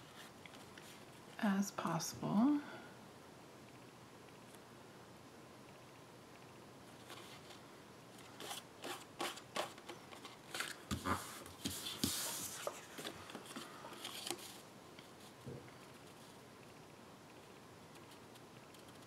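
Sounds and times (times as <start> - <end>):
paper being shuffled by hand: 8.2 - 15.3.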